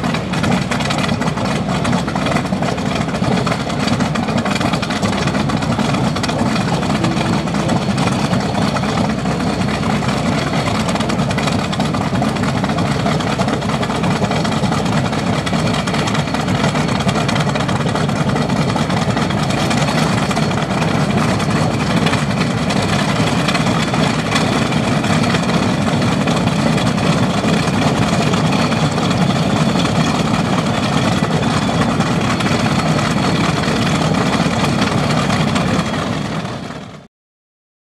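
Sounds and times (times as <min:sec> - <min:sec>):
aircraft radial engines idling: 0:00.0 - 0:37.1.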